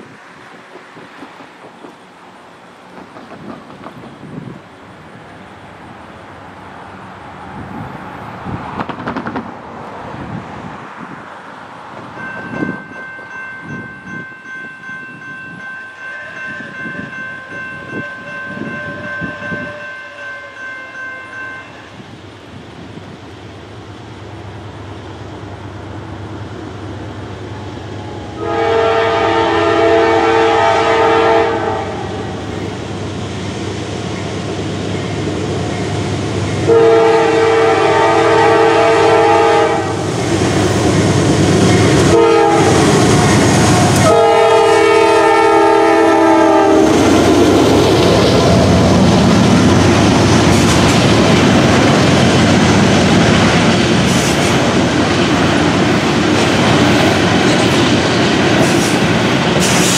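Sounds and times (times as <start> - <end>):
train air horn blast: 17.4 - 20.6, 28.4 - 32.2, 36.7 - 40.1, 42.1 - 47.1
diesel locomotive rumble: 22.0 - 59.9.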